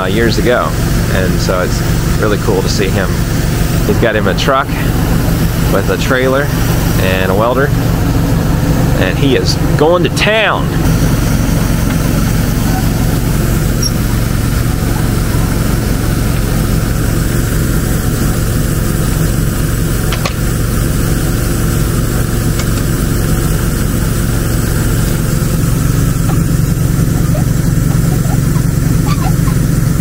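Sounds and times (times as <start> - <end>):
engine running steadily: 0.0 - 30.0.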